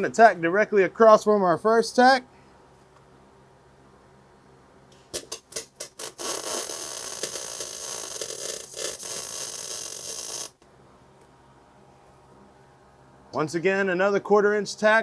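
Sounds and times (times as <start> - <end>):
welding arc buzzing: 5.4 - 10.6.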